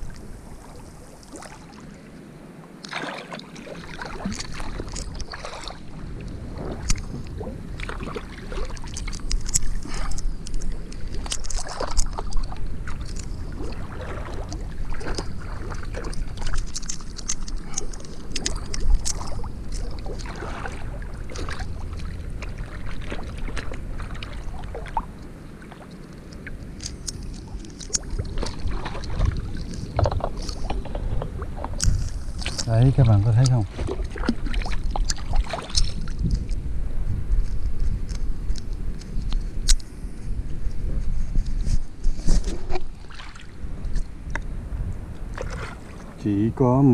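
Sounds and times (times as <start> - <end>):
low rumble of moving water: 0.0 - 46.9
water splashing from swimming: 2.8 - 36.3, 42.7 - 43.6.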